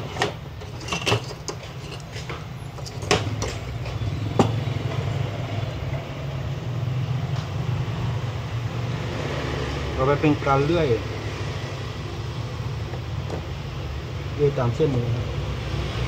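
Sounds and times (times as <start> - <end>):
metal tools clicking and clacking: 0.0 - 4.0.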